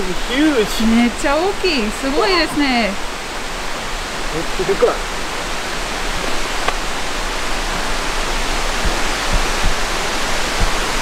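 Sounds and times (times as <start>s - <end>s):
waterfall rushing: 0.0s - 11.0s
soft low thumps: 8.2s - 11.0s.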